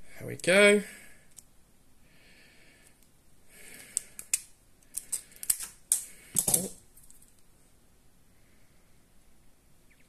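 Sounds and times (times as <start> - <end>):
pliers clicking and scraping metal: 3.7 - 7.4.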